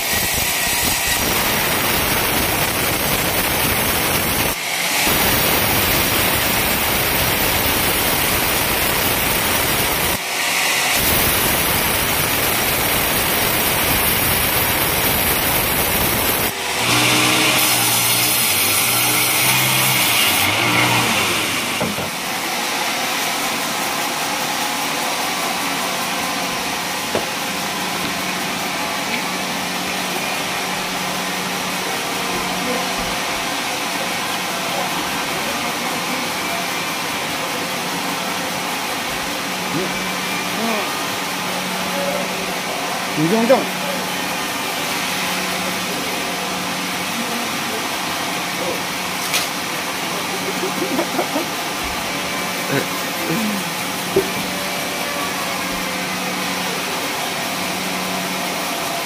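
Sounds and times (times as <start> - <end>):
band saw cutting log: 0.0 - 23.5, 48.1 - 56.6
sawmill machinery hum: 0.0 - 59.0.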